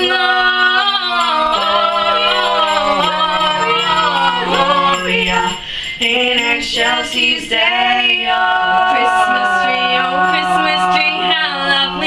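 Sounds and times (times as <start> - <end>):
group singing a cappella: 0.0 - 12.0.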